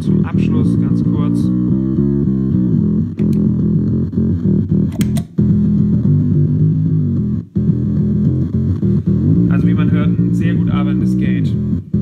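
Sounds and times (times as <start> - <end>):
fuzz bass guitar riff: 0.0 - 12.0
sharp clicks: 3.2 - 3.5, 4.9 - 5.4.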